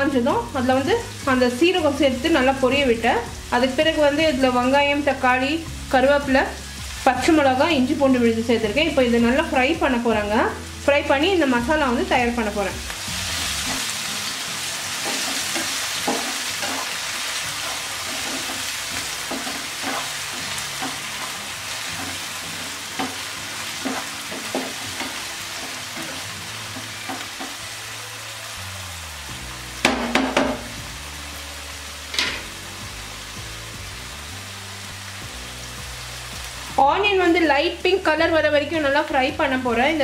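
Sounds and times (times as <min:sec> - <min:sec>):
food sizzling in a frying pan: 0:00.0 - 0:40.0
spatula scraping and tapping a pan: 0:15.0 - 0:17.0, 0:17.6 - 0:27.6, 0:32.1 - 0:32.5.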